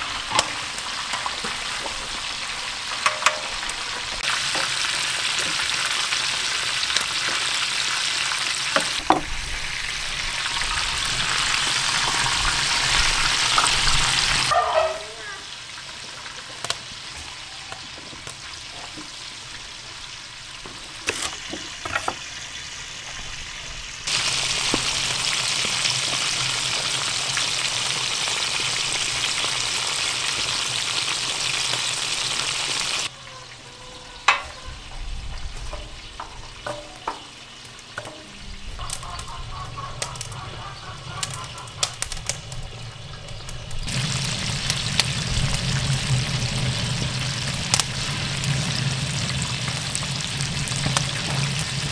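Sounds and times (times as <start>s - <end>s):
fish sizzling in hot oil: 0.0s - 14.5s, 15.4s - 33.1s, 38.8s - 51.9s
oil popping and clicking: 41.1s - 46.6s.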